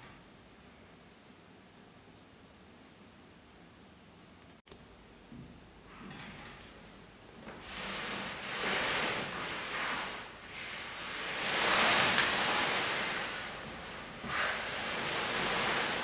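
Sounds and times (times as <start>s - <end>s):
cloth with metal plates rustling: 7.5s - 16.0s.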